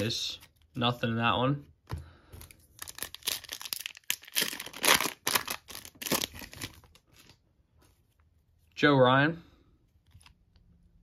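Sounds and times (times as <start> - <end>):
card pack wrapper crinkling: 2.4 - 7.4.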